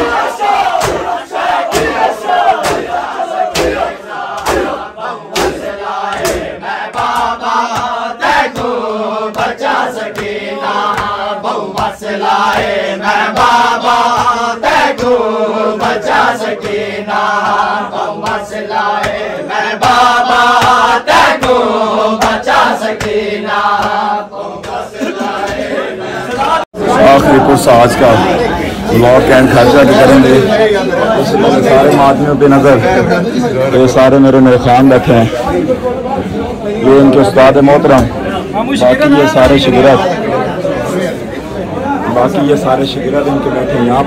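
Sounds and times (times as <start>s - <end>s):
men chanting rhythmically: 0.0s - 32.0s.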